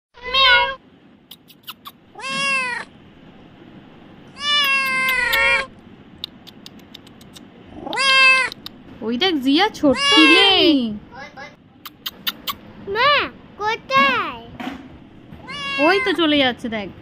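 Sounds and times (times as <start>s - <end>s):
kitten meowing: 0.2s - 2.9s, 4.4s - 5.7s, 7.8s - 8.7s, 9.9s - 10.7s, 15.4s - 16.2s.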